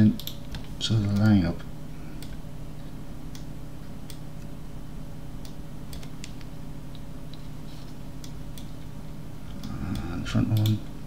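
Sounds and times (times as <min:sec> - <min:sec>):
steady low hum: 0:00.0 - 0:11.0
keyboard and mouse clicks: 0:00.1 - 0:01.4, 0:05.4 - 0:07.5, 0:09.5 - 0:10.9.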